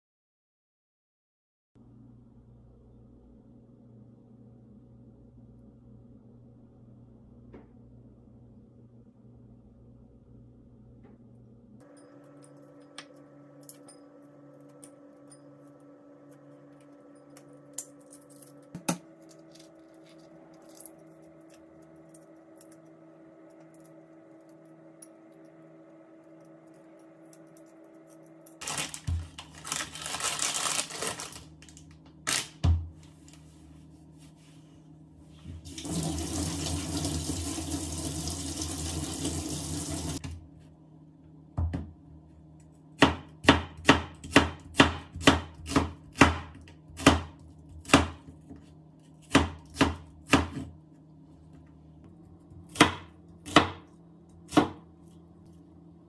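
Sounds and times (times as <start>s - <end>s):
kitchen tap running: 35.6s - 40.2s.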